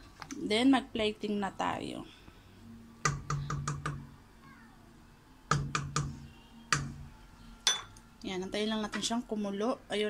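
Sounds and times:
wooden spoon knocking on pot: 0:05.5 - 0:07.0.

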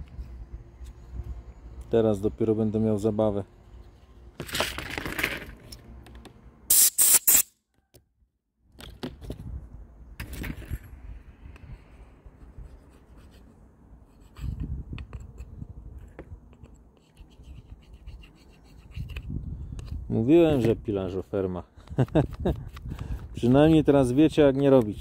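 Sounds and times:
compressed air blasts hissing: 0:06.7 - 0:07.5
metal tool scraping and clicking: 0:14.3 - 0:17.8.

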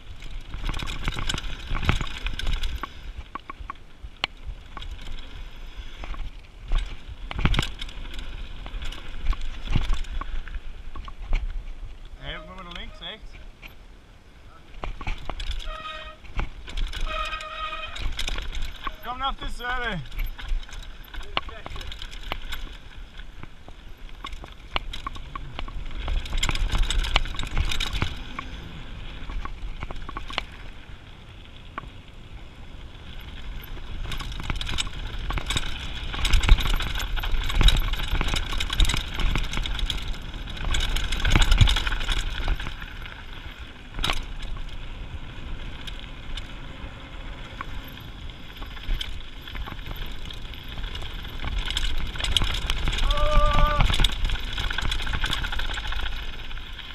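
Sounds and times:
bike rattling over bumps: 0:00.0 - 0:14.0, 0:14.6 - 0:56.9
wind rumbling on microphone: 0:00.0 - 0:56.9
tyres crunching over gravel: 0:14.8 - 0:56.9.

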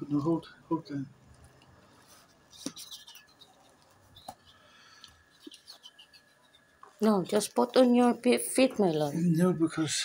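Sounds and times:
faint rubber squeaks: 0:02.0 - 0:06.8.

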